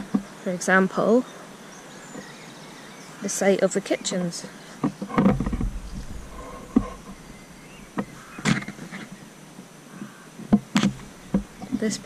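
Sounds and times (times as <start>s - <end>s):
low rumble: 5.3s - 8.9s
knocks and footfalls: 10.4s - 12.0s.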